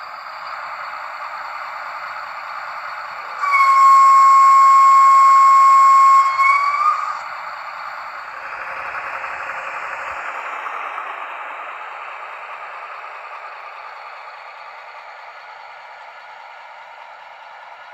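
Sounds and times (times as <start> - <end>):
model train horn blast: 3.4 - 7.2.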